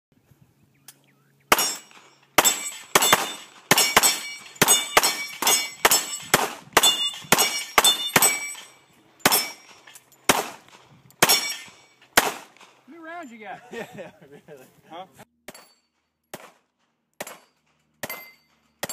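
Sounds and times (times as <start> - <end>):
steel plate clanging: 1.5 - 12.2, 17.2 - 18.9
rapid handgun shots: 1.5 - 12.8, 16.3 - 18.2.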